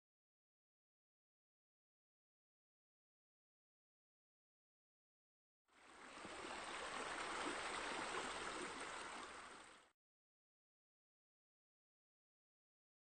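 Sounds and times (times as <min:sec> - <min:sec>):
steady rushing water-like noise: 0:05.7 - 0:09.9.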